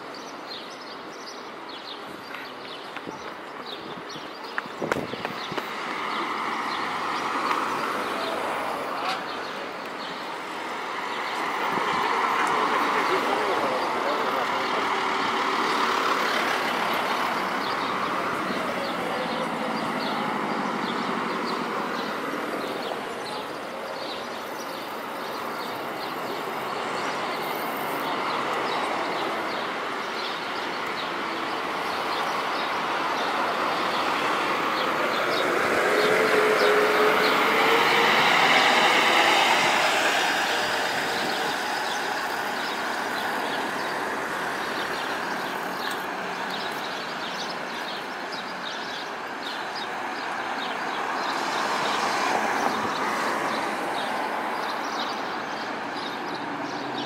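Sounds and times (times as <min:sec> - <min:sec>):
diesel bus engine pulling away: 0:11.5 - 0:22.3, 0:31.3 - 0:47.7.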